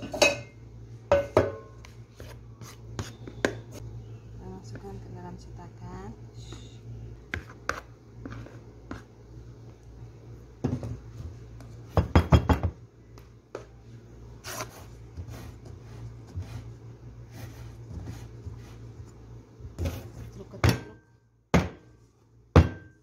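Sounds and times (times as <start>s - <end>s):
steady low hum: 0.0s - 23.0s
spatula knocking on a metal pan: 22.5s - 23.0s.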